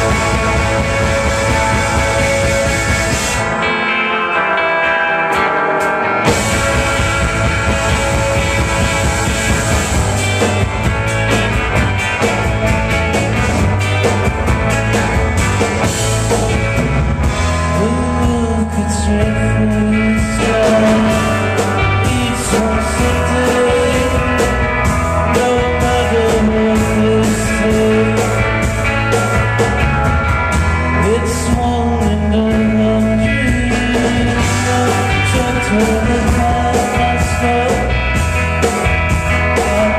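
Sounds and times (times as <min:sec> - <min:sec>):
bass and drums: 0:00.0 - 0:39.9
jangly electric guitar riff: 0:00.0 - 0:39.9
man singing: 0:17.6 - 0:28.7, 0:30.9 - 0:38.3, 0:39.3 - 0:39.9.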